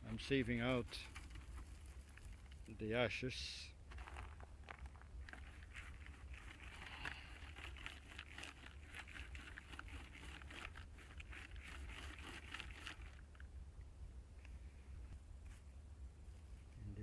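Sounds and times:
small clicks of sifting ash: 0:03.9 - 0:13.5.

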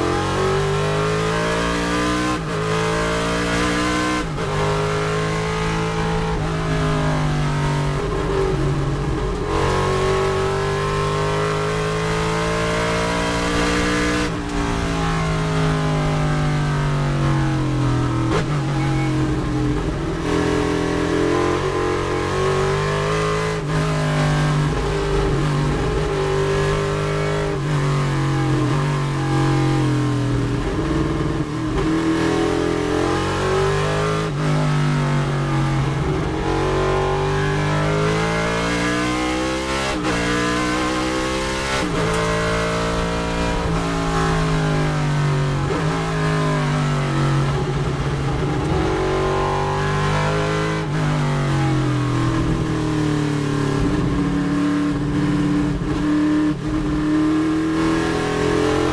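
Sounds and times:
race car engine accelerating: 0:00.0 - 0:58.9.

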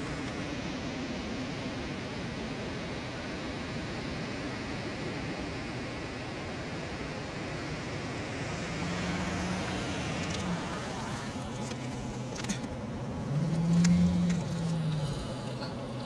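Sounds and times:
outdoor background noise: 0:00.0 - 0:16.0
engine humming: 0:07.3 - 0:16.0.

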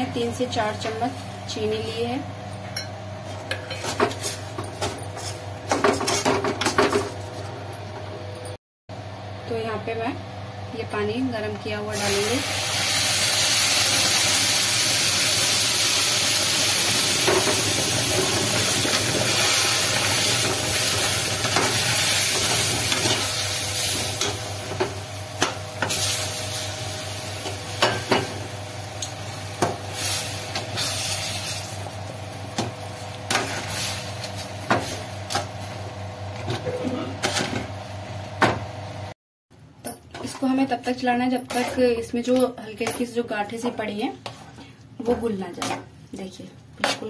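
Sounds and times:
hot water hissing and sizzling: 0:11.9 - 0:32.0
metal spoon scraping a pan: 0:46.8 - 0:47.0.

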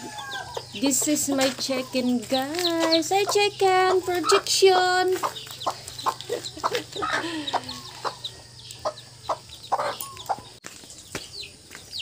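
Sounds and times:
chicks peeping: 0:00.0 - 0:12.0
hen clucking softly: 0:05.2 - 0:08.2.

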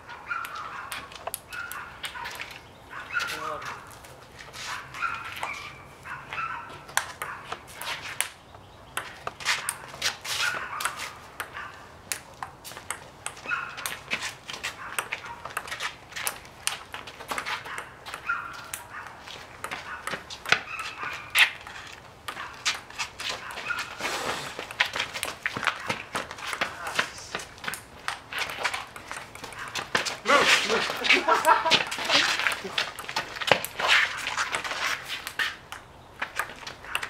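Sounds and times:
ping-pong ball clicking: 0:10.8 - 0:14.0, 0:24.6 - 0:27.0, 0:27.7 - 0:30.0, 0:35.2 - 0:37.0.

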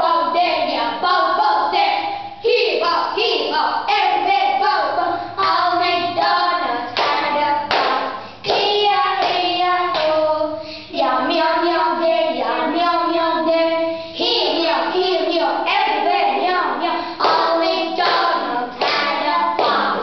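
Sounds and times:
girls singing a children's song: 0:00.0 - 0:20.0
hand claps: 0:07.0 - 0:10.2, 0:17.2 - 0:19.9.

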